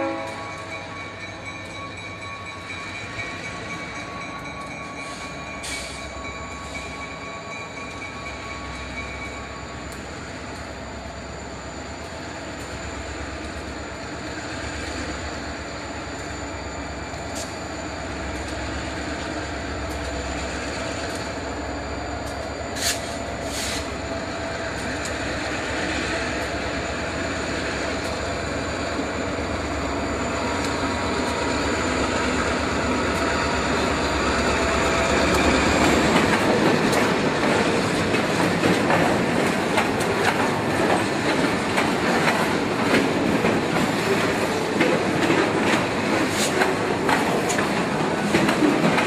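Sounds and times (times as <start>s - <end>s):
locomotive engines rumbling: 0.0s - 49.0s
wheels squealing on rails: 0.0s - 49.0s
steady ringing tone: 0.4s - 12.9s.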